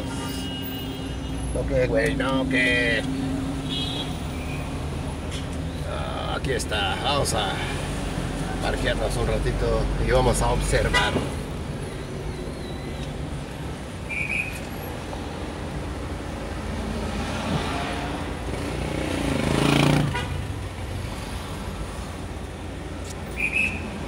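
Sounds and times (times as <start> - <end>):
traffic rumble: 0.0 - 24.0
loud vehicle passing: 16.0 - 24.0.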